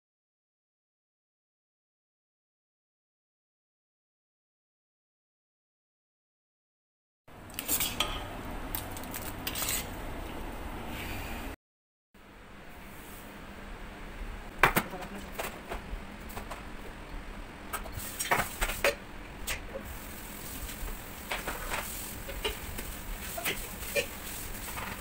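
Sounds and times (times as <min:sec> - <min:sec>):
low steady hum: 0:12.2 - 0:25.0.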